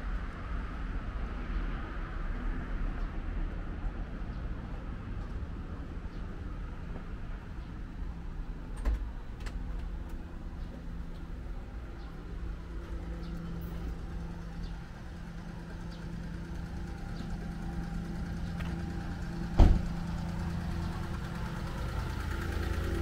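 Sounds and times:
engine idling: 4.2s - 23.0s
sharp bang: 19.5s - 20.0s.

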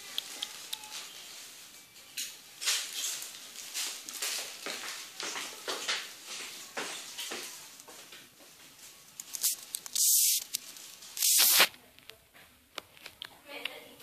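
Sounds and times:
loud hissing bursts: 9.4s - 10.5s, 11.2s - 11.7s.

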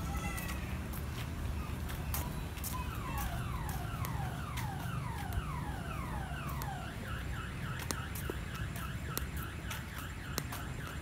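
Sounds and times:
sharp ticks: 7.8s - 11.0s.

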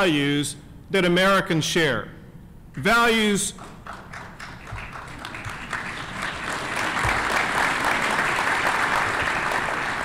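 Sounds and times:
audience applause: 3.8s - 10.0s.

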